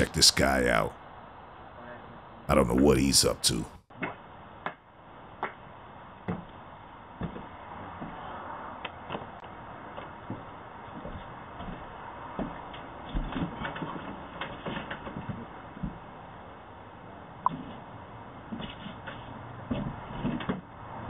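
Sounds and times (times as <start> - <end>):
steady microphone hiss: 0.0 - 7.1.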